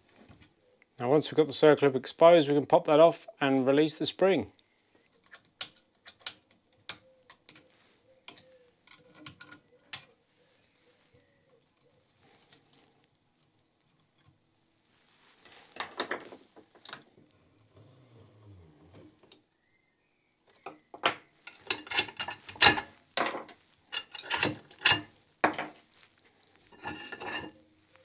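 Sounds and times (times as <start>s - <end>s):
screwdriver metallic clicks and scrapes: 23.9s - 25.1s, 26.6s - 27.6s.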